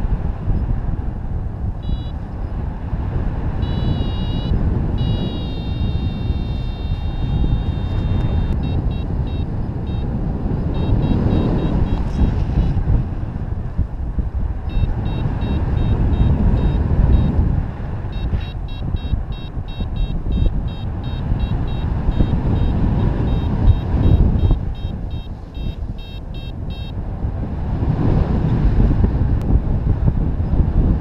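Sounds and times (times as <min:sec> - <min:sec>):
wind buffeting microphone: 0:00.0 - 0:31.0
variometer beeping rapidly: 0:01.8 - 0:02.4, 0:03.6 - 0:12.7, 0:14.7 - 0:27.0.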